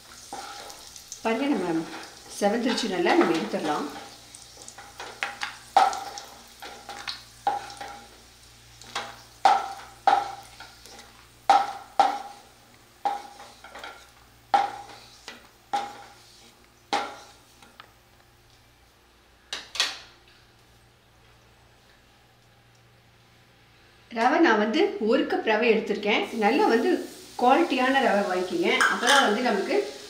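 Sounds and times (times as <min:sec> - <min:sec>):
wooden spatula knocking on pan: 0:09.4 - 0:10.4, 0:11.5 - 0:12.3, 0:14.5 - 0:14.8.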